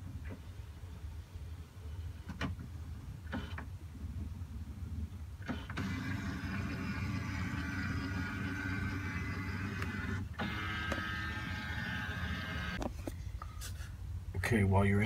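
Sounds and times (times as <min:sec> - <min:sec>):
scanner motor whirring: 0:05.7 - 0:12.8.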